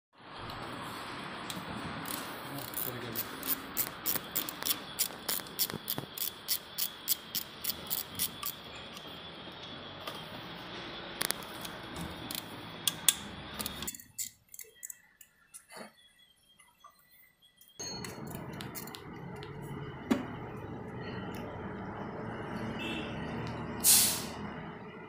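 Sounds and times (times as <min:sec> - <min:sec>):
ratchet wrench clicking: 0:02.0 - 0:08.6.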